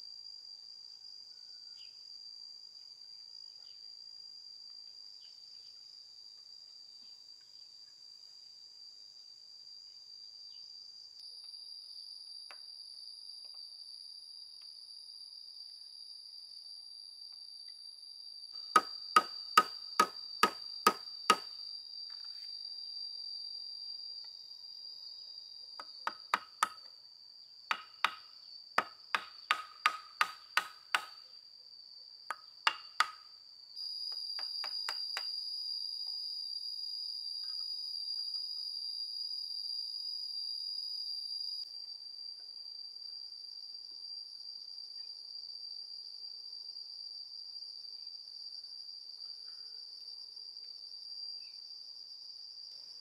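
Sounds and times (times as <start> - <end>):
insects chirring: 0.0 - 53.0
hammer knocking nails into wood: 18.8 - 21.5, 25.8 - 26.8, 27.7 - 28.2, 28.8 - 31.2, 32.3 - 33.2.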